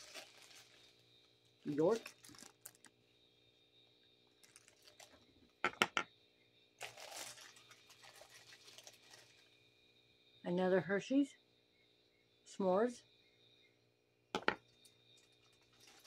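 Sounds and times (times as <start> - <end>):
plastic bag rustling: 0.0 - 3.0, 4.4 - 5.2, 6.8 - 9.5, 15.2 - 16.0.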